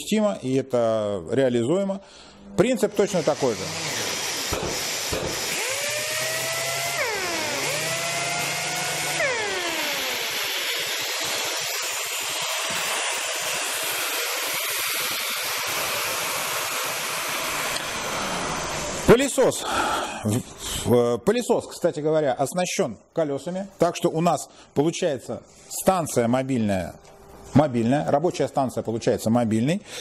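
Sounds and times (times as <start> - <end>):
sanders whining: 2.3 - 19.4
dust extractor rushing: 2.8 - 19.3.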